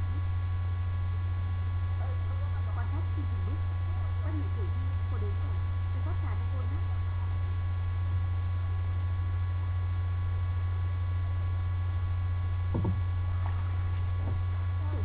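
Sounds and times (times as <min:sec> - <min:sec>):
faint high whine: 0:00.0 - 0:15.0
low electrical hum: 0:00.0 - 0:15.0
faint knock: 0:12.7 - 0:13.6.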